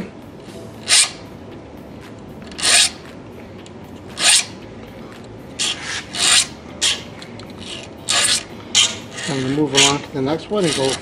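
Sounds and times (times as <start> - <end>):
file rasping across steel teeth: 8.1 - 10.0, 10.6 - 11.0.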